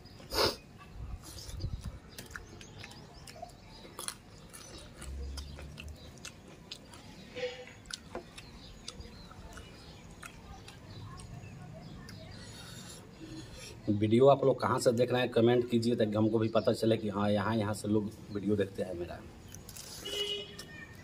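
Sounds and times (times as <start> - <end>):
chewing and lip-smacking: 1.2 - 13.9.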